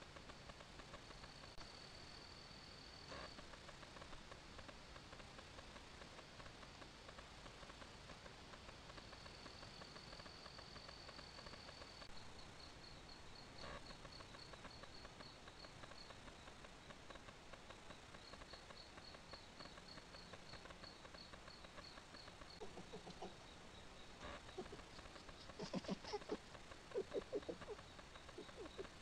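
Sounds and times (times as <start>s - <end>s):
insect high chirps: 9.1s - 29.0s
insect high trill: 24.0s - 29.0s.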